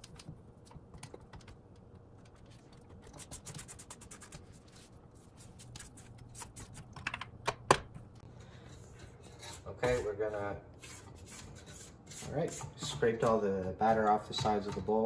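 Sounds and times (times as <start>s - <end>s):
spatula scraping metal bowl: 8.6s - 15.0s.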